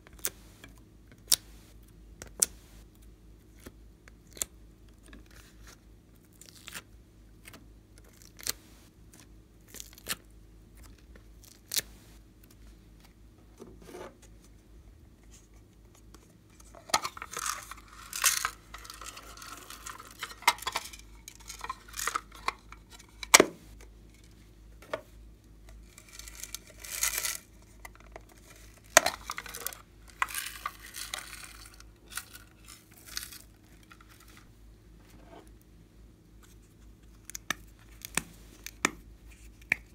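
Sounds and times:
plastic tearing and crinkling: 0:16.6 - 0:23.4, 0:25.8 - 0:34.5.

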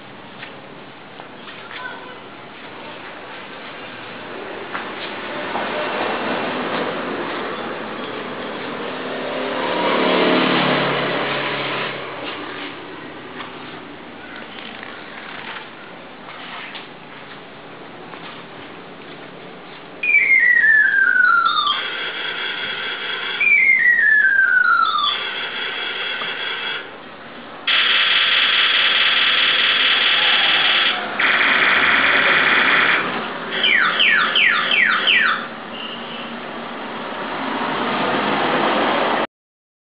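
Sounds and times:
toy car horn tones and whistles: 0:20.0 - 0:26.9, 0:33.6 - 0:36.3.

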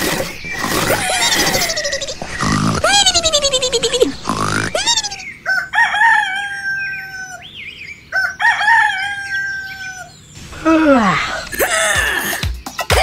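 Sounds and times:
rooster crowing: 0:04.7 - 0:07.4, 0:08.1 - 0:10.1.

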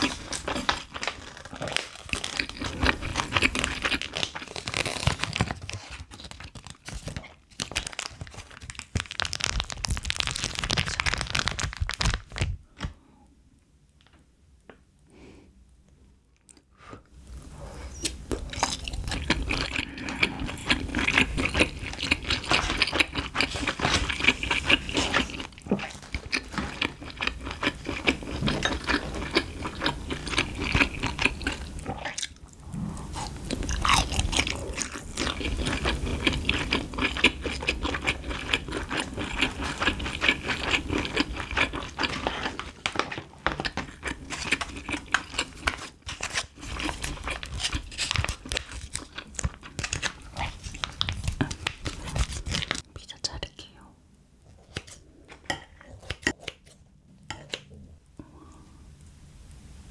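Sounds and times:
chewing and biting food: 0:00.0 - 0:10.4, 0:18.0 - 0:52.8
plastic pouch crinkling: 0:00.0 - 0:12.9
crunchy bites: 0:33.1 - 0:52.8.

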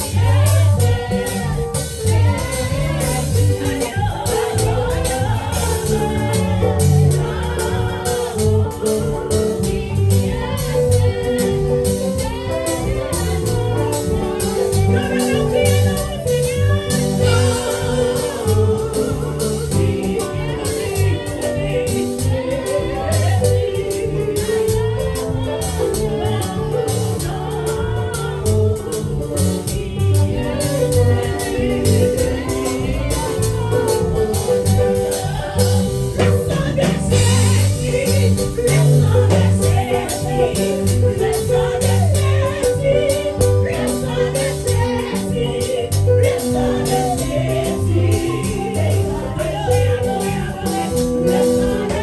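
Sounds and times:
band with strong bass line: 0:00.0 - 0:52.0
steady percussive beat: 0:00.0 - 0:52.0.

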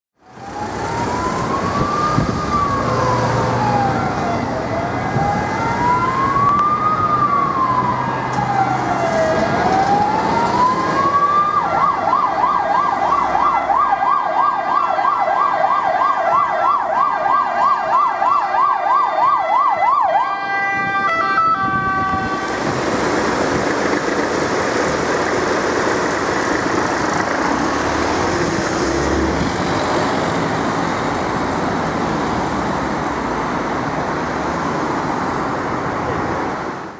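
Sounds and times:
road traffic noise: 0:00.2 - 0:36.9
electronic siren wailing: 0:00.3 - 0:22.7
siren fast yelp: 0:00.6 - 0:22.6.

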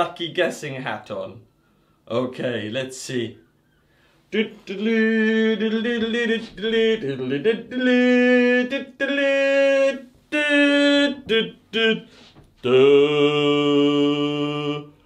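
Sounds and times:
man singing wordless tune: 0:04.3 - 0:15.0.

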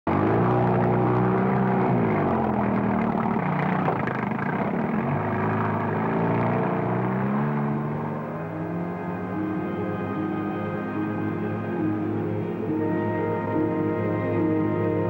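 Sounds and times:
engine running: 0:00.1 - 0:15.0.

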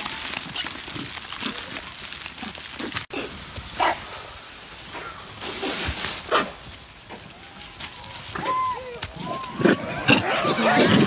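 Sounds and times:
macaques calling: 0:08.2 - 0:11.0.

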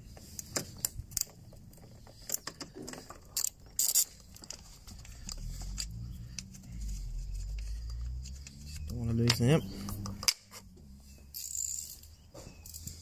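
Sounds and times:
hand ratchet clicking: 0:03.3 - 0:06.6.

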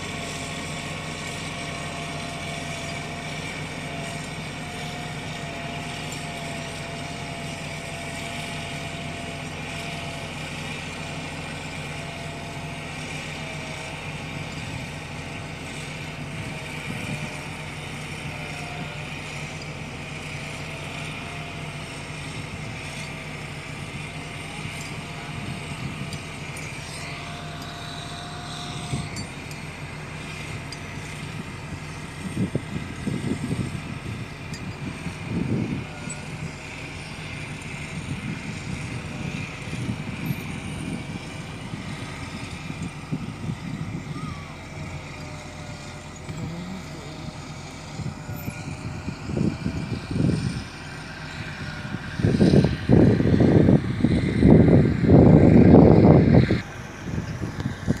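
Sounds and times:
diesel engine running: 0:00.0 - 0:58.0
faint wavering whine: 0:22.0 - 0:58.0.

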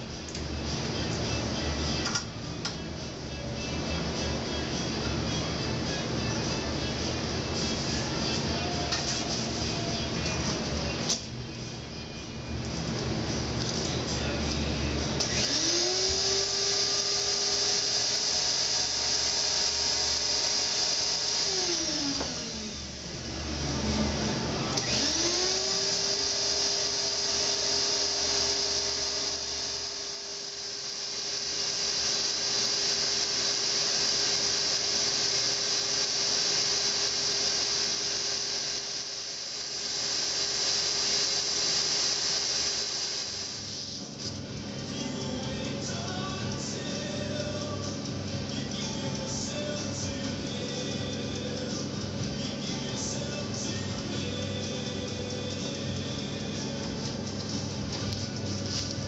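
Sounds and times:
small electric motor whining: 0:15.2 - 0:44.4.

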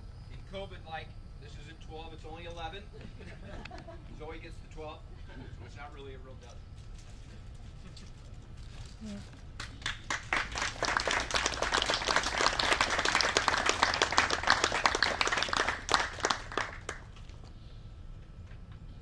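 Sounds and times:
audience applauding: 0:09.6 - 0:17.4.

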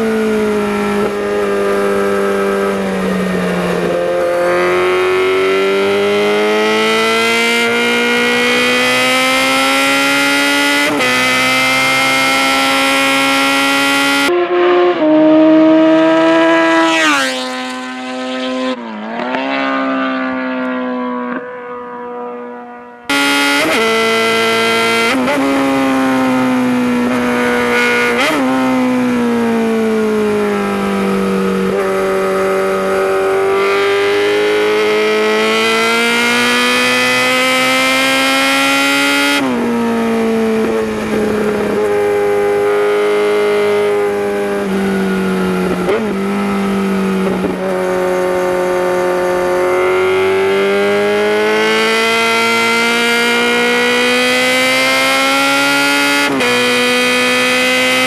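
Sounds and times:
motorcycle passing by: 0:00.0 - 0:58.0
motorcycle engine running under load: 0:21.2 - 0:58.0.

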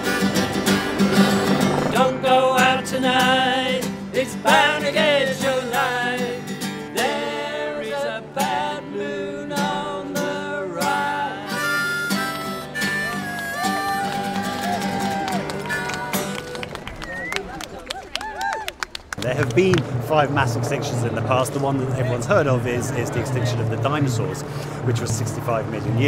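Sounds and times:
strummed acoustic guitar chords: 0:00.0 - 0:16.5
harmonica melody: 0:00.0 - 0:16.6.

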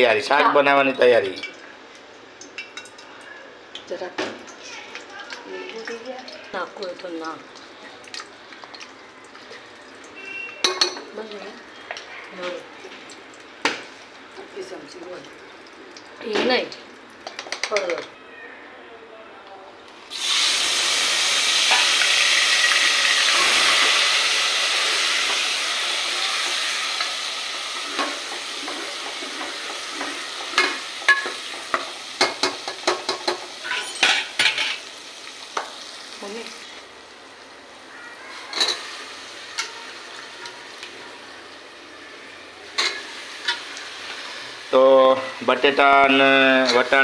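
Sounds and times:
tomatoes sizzling in hot oil: 0:00.0 - 0:18.1, 0:20.1 - 0:47.0
metal spoon stirring in pot: 0:26.4 - 0:34.9.

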